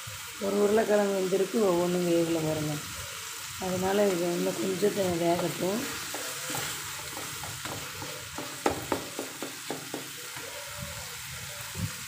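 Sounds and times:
curry sizzling: 0.0 - 12.0
wooden spatula tapping a pan: 5.4 - 10.6.

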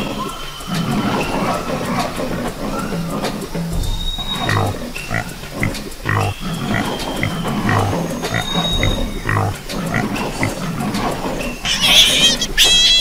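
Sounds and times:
thin high whistles: 0.0 - 13.0
pig grunting: 4.4 - 11.0.

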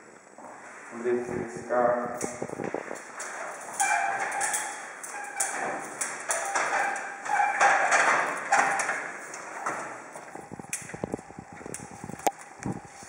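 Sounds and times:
rustling and handling noise: 2.2 - 13.0.

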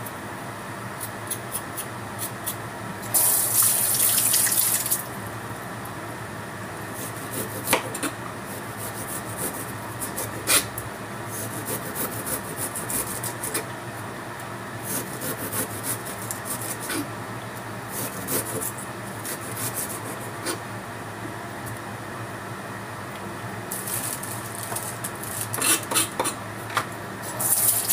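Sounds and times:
knife scraping ginger skin: 7.0 - 10.7, 11.4 - 13.6, 18.0 - 20.6, 23.8 - 26.4.

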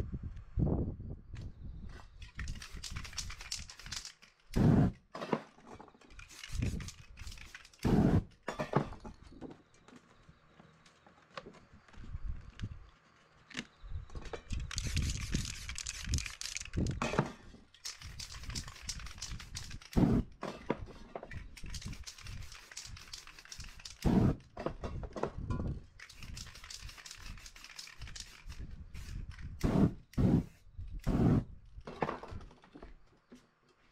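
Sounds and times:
cans clicking and rattling: 2.2 - 4.6, 6.1 - 7.9, 14.5 - 17.0, 17.8 - 20.0, 21.3 - 24.1, 26.0 - 29.6
spray paint can hissing: 2.4 - 4.9, 6.2 - 8.3, 14.6 - 17.0, 17.8 - 20.3, 21.6 - 24.4, 26.0 - 31.5.

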